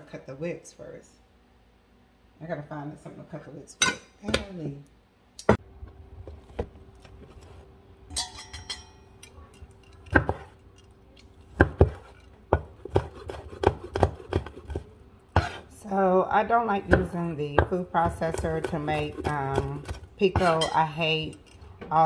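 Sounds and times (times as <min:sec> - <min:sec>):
utensils knocking and clinking: 0:08.1 - 0:10.9.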